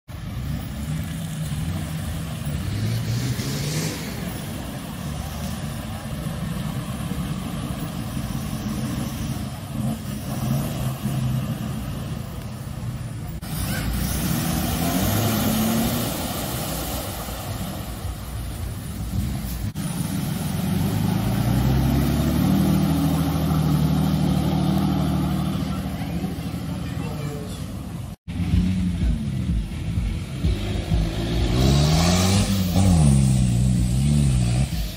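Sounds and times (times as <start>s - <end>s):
off-road engines revving: 0.1s - 34.9s.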